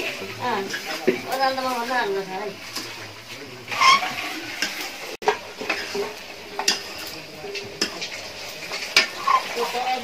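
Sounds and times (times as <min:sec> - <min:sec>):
metal pots clanking: 0:00.0 - 0:10.0.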